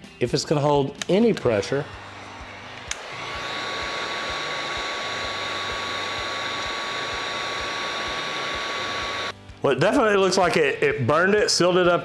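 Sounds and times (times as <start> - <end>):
heat gun blowing air: 1.5 - 9.4
heat gun switch click: 2.8 - 3.2.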